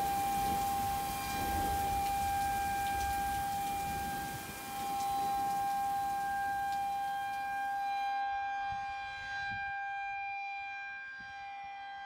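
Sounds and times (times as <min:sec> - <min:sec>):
heavy rain: 0:00.0 - 0:07.8
warning siren steady tone: 0:00.0 - 0:12.0.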